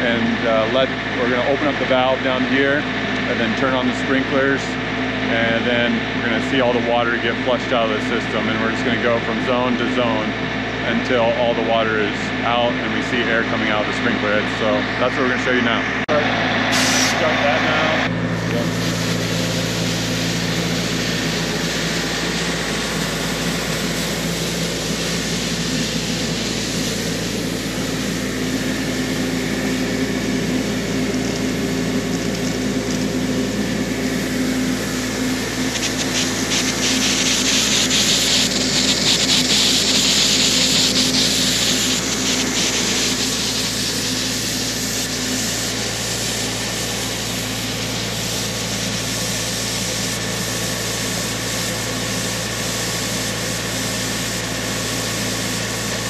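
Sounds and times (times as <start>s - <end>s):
air compressor running: 0.0s - 56.0s
sprinkler heads hissing: 16.7s - 17.8s, 18.5s - 56.0s.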